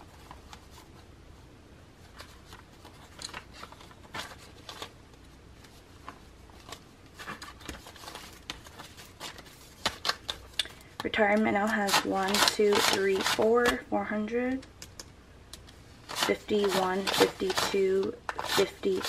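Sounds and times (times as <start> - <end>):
paper banknotes rustling: 2.0 - 5.0, 5.6 - 13.8, 16.0 - 19.0.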